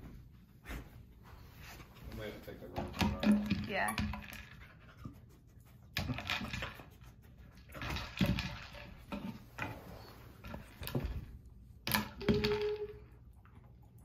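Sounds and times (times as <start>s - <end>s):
dog sniffing: 4.8s - 6.0s.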